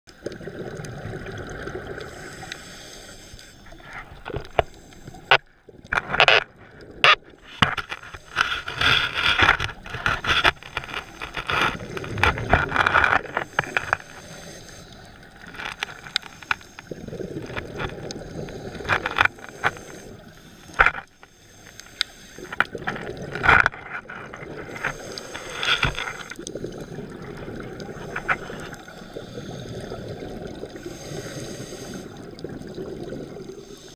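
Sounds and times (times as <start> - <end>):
underwater bubbles gurgling: 0.1 - 33.9
diver breathing hiss: 2.0 - 3.9, 13.4 - 15.2, 18.2 - 22.6, 24.7 - 26.4, 27.8 - 30.2, 30.8 - 32.3, 33.5 - 33.9.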